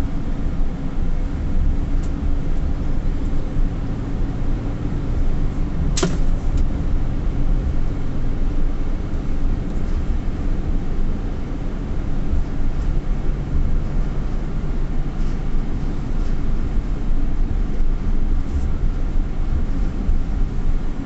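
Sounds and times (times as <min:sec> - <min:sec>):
car road and engine rumble: 0:00.0 - 0:21.0
sharp click: 0:06.0 - 0:06.7.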